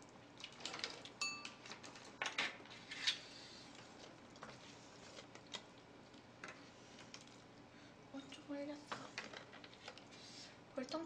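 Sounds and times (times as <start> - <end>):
chopsticks clinking on bowls: 1.2 - 1.8.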